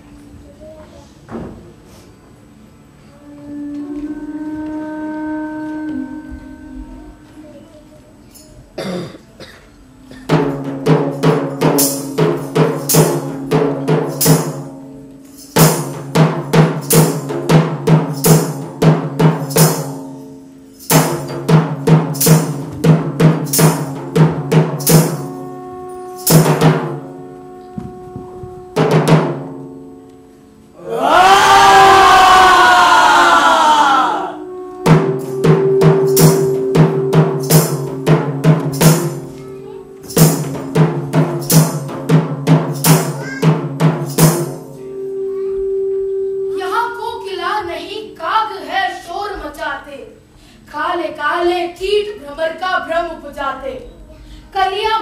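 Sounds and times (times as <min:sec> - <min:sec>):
held low tone: 0:03.1 - 0:08.0, 0:44.8 - 0:47.5
quick drum strikes: 0:10.1 - 0:25.6, 0:26.2 - 0:27.1, 0:28.8 - 0:29.8, 0:34.8 - 0:39.4, 0:40.0 - 0:44.8.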